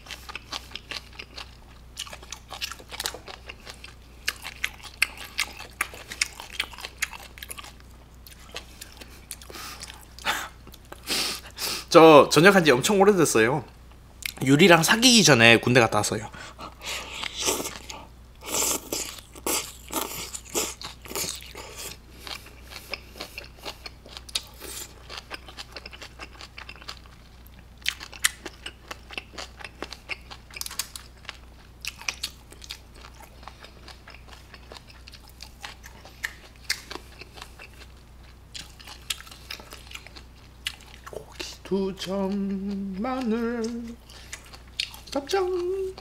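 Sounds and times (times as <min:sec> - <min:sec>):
wet chewing clicks and smacks: 0:00.1 - 0:11.0, 0:22.2 - 0:41.6.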